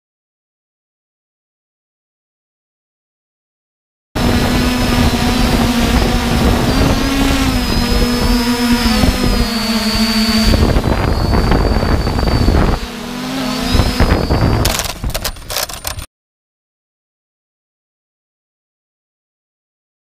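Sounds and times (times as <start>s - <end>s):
wind rushing over microphone: 4.2s - 16.0s
drone motors whining: 4.2s - 16.1s.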